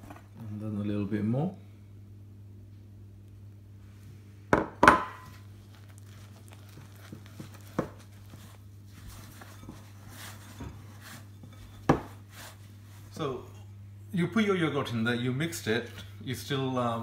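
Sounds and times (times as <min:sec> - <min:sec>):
low steady hum: 0:00.0 - 0:17.0
knocks against glass bowl: 0:04.6 - 0:05.2
wet dough squishing: 0:05.2 - 0:13.2.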